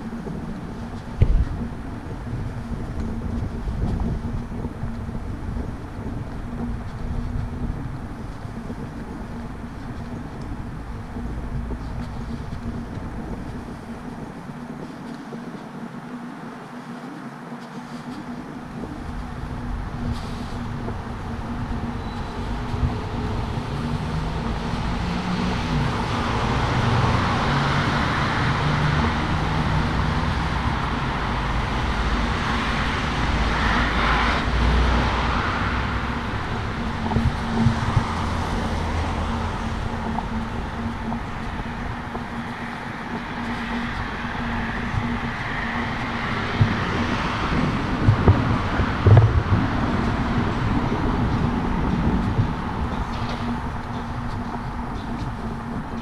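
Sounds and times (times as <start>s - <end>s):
low engine hum: 0.0s - 56.0s
cars driving past: 17.5s - 56.0s.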